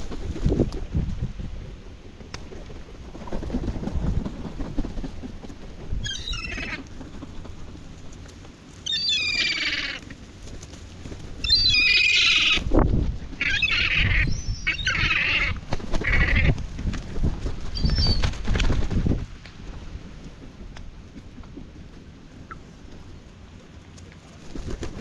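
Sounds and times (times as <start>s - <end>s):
wings flapping: 0.0s - 1.3s, 2.0s - 23.0s, 23.9s - 25.0s
wind buffeting microphone: 0.0s - 8.0s, 12.4s - 22.2s
gulls squealing: 6.0s - 6.8s, 8.8s - 10.0s, 11.4s - 12.7s, 13.4s - 16.5s.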